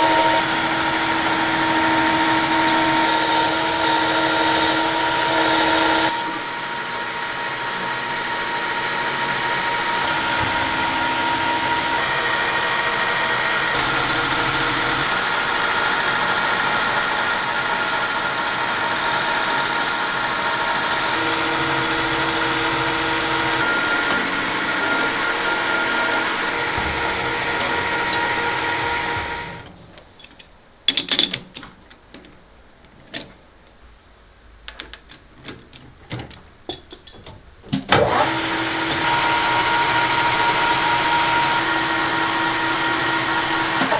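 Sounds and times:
thin high whine: 0.0 - 7.0, 10.0 - 26.9
lathe cutting metal: 0.0 - 29.6, 38.0 - 43.9.

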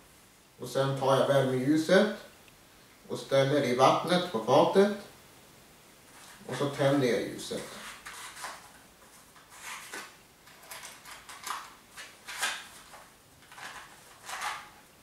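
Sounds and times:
matchbox tray scraping and rattling: 7.6 - 8.8, 9.4 - 14.8.

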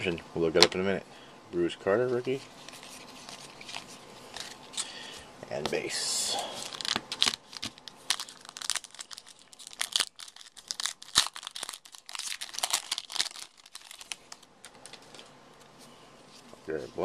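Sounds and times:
wrapper being torn and crinkled: 6.5 - 15.2.

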